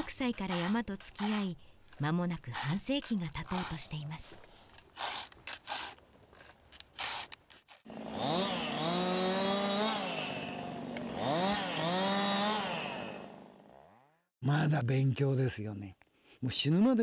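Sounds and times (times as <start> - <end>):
chainsaw revving: 7.8 - 14.2.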